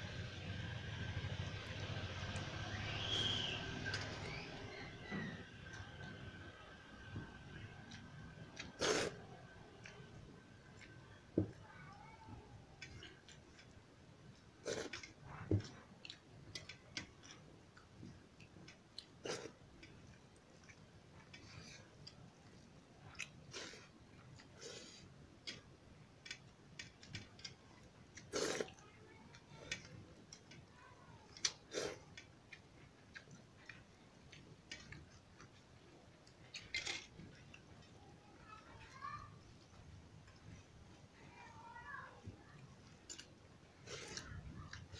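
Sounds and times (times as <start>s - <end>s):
chewing: 7.6s - 25.6s, 26.2s - 37.9s, 42.4s - 44.9s.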